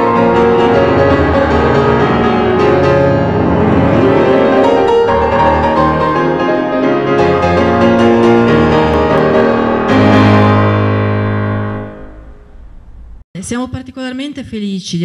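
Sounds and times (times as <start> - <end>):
low bass line: 0.0 - 13.2
piano background music: 0.0 - 13.2.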